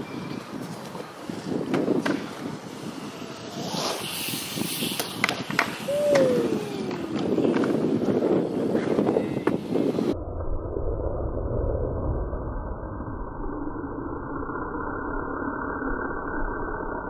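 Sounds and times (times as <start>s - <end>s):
bike tyres rolling on concrete: 0.0s - 10.2s.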